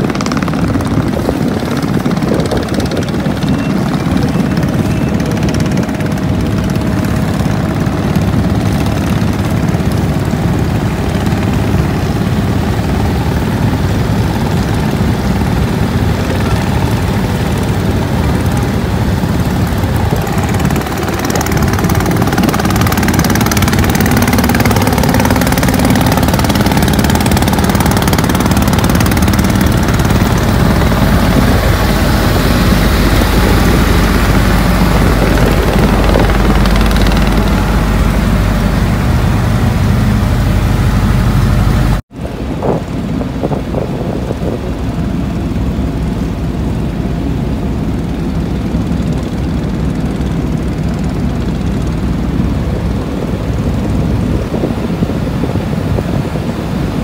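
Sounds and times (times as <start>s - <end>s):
motorboat engine rumbling: 0.0s - 57.0s.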